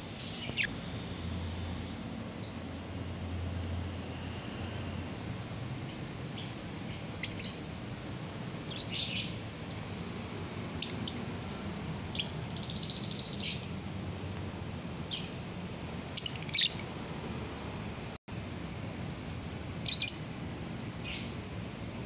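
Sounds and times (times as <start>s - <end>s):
steady low hum: 0.0s - 16.2s
lovebirds chirping: 0.2s - 0.7s.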